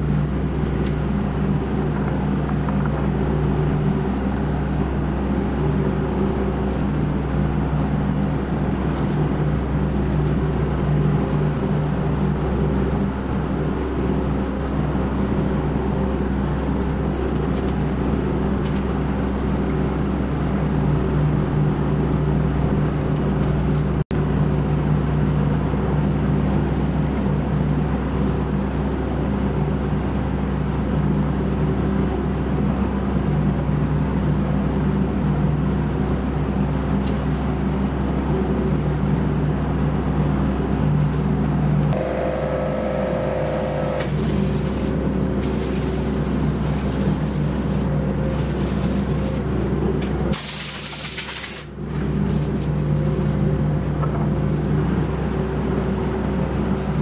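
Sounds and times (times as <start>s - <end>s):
electric motor hum: 41.8s - 49.1s.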